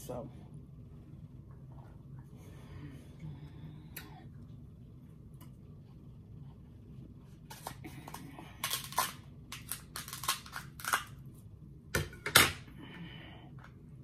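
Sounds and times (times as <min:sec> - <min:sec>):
scissors cracking crab shell: 0:07.5 - 0:11.1.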